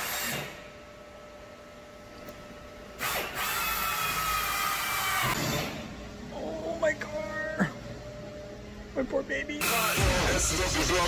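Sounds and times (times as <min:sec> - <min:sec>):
power drill whining: 0:03.0 - 0:05.7.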